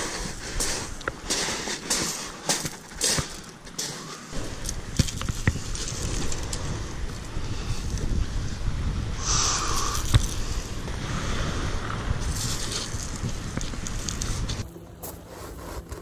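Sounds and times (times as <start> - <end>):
footsteps on pebbles: 0.0 - 6.5, 12.3 - 16.0
wind on microphone: 4.3 - 14.6.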